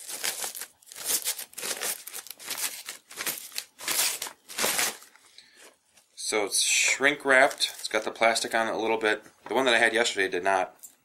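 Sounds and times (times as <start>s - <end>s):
plastic wrapping crinkling: 0.0s - 5.7s.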